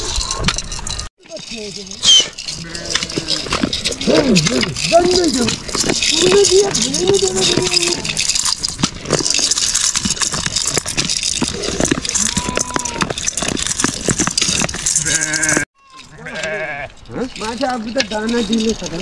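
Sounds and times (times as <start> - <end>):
sheep bleating: 15.0 - 17.0.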